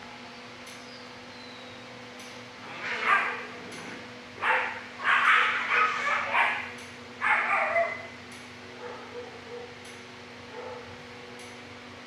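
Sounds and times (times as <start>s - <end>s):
dogs barking: 2.6s - 9.8s, 10.5s - 11.0s.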